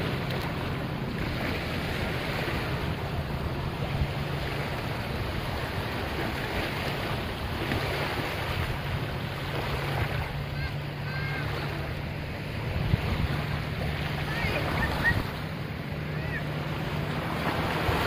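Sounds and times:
small waves washing over rocks: 0.0s - 12.2s, 16.2s - 18.0s
wind on microphone: 11.3s - 15.6s.

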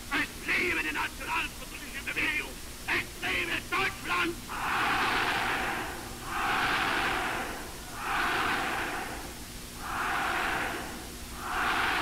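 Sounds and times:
crowd chanting: 4.5s - 12.0s.

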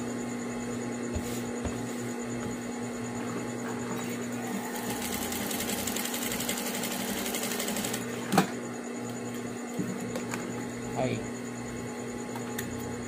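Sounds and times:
sewing machine stitching fabric: 4.7s - 8.0s.

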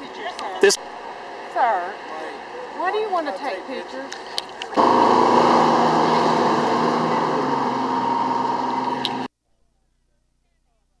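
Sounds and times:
diesel engine droning: 2.3s - 9.3s.

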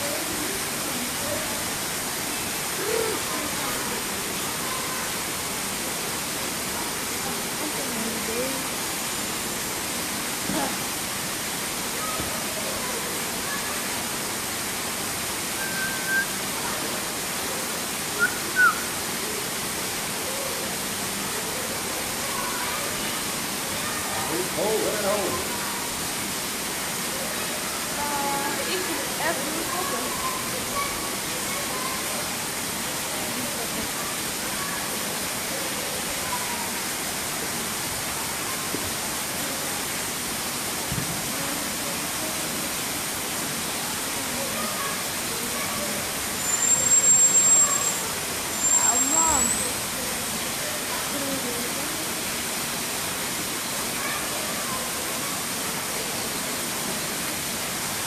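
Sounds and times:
short whistled calls: 15.6s - 16.4s, 18.2s - 19.0s, 46.4s - 48.0s.

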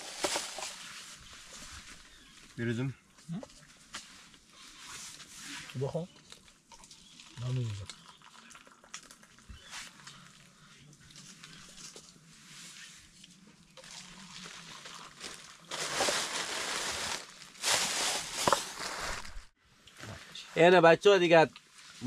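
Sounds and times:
tea pouring into paper cups: 6.1s - 11.4s, 13.7s - 15.7s.

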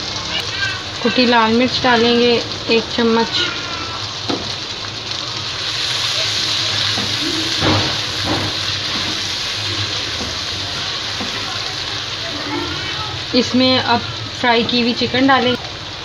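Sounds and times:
vegetables sizzling in hot oil: 0.0s - 16.0s
spatula stirring in a wok: 5.4s - 12.9s.

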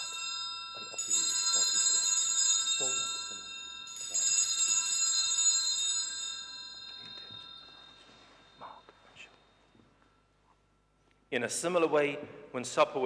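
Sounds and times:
altar bells ringing: 0.0s - 10.0s.

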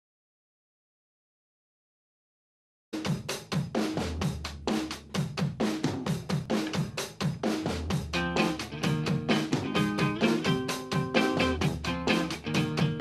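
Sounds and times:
drum kit beat: 3.0s - 13.0s
bass line: 7.9s - 13.0s.

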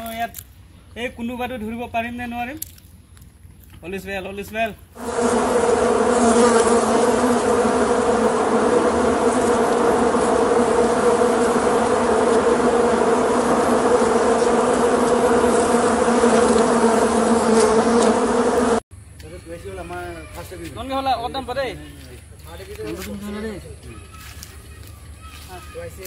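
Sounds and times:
hornets buzzing: 5.0s - 18.8s.

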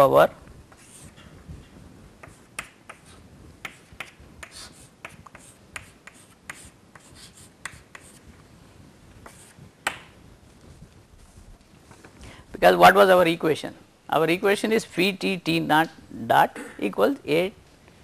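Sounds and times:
chalk tapping and scratching: 0.7s - 8.3s, 9.2s - 10.0s.

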